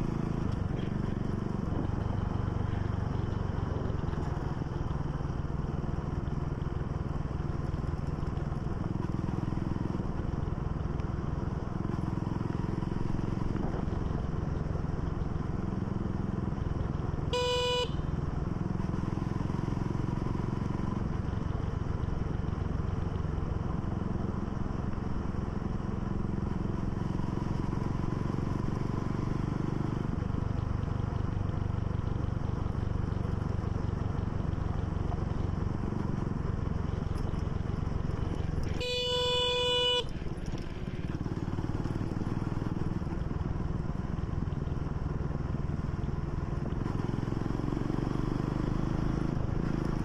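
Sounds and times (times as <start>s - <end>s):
motorcycle engine running: 0.0s - 50.0s
short horn beep: 17.3s - 18.1s, 38.2s - 40.4s.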